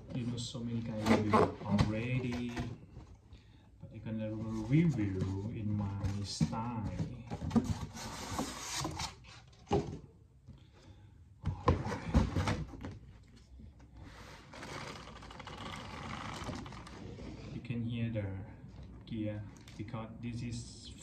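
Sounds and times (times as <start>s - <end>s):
cardboard boxes rubbing: 4.4s - 9.6s.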